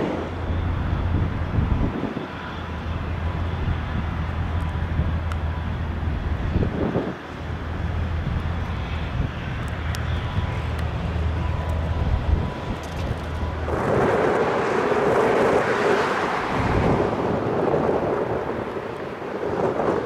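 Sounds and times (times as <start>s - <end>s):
loud rushing noise: 0.0s - 9.5s, 10.1s - 20.0s
low engine drone: 0.0s - 20.0s.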